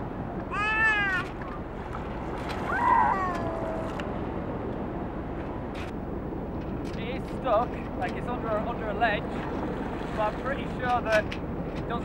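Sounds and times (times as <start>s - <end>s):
sea waves: 0.0s - 6.4s, 7.6s - 12.0s
wind: 0.0s - 12.0s
toddler calling out: 0.5s - 1.4s, 2.7s - 4.0s.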